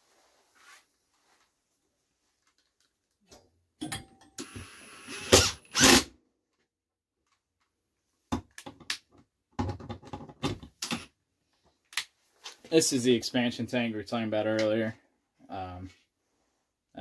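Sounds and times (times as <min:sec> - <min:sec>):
cordless driver whirring: 0:04.4 - 0:06.1.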